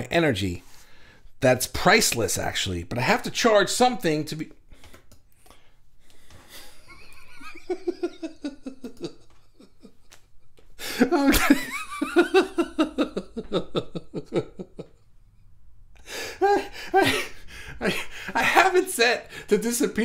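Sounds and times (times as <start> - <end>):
man laughing: 6.5 - 15.1, 16.1 - 20.0.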